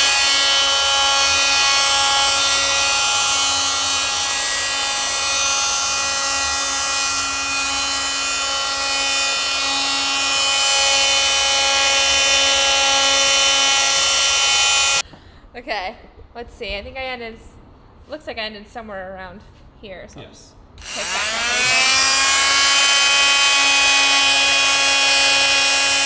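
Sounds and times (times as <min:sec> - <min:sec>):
oscillating multi-tool sanding paint: 0:00.0 - 0:15.0, 0:20.8 - 0:26.0.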